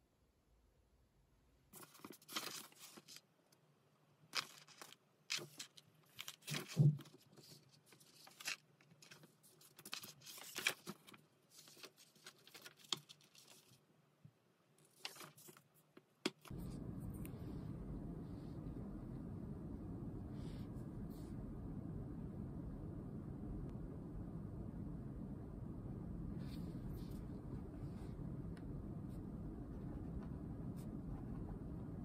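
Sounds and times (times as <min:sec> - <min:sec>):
low room hum: 0:00.0 - 0:32.0
paper pages rustling: 0:01.8 - 0:03.2, 0:04.3 - 0:13.8, 0:14.8 - 0:16.6.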